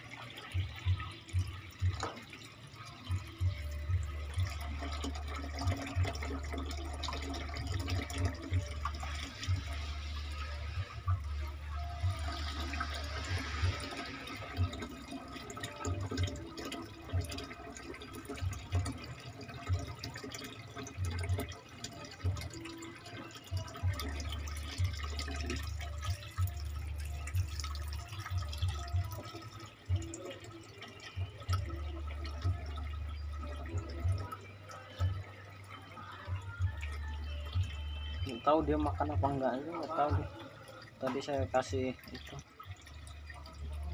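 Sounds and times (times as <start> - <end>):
water splashing into aquarium: 0.0 - 43.9.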